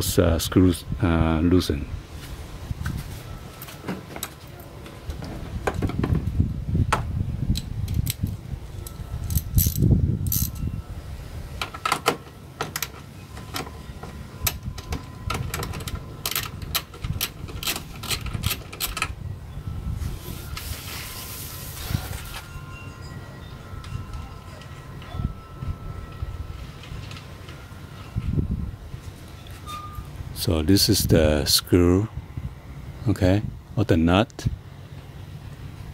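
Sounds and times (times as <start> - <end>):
low rumbling handling noise: 2.0 - 31.4
socket wrench clicking on metal: 7.6 - 10.6, 15.6 - 19.1
brief hiss: 20.0 - 22.5.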